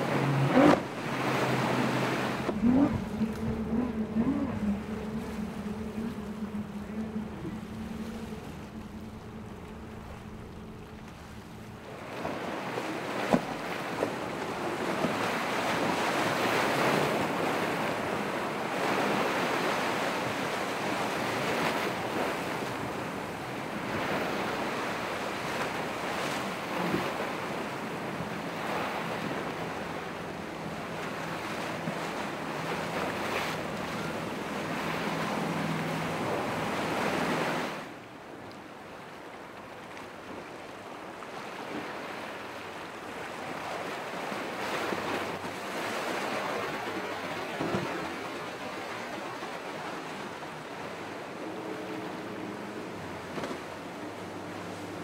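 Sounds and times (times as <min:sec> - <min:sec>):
wind buffeting microphone: 0:00.0 - 0:37.8
surf breaking: 0:00.0 - 0:37.9
faint boat engine hum: 0:00.0 - 0:55.0.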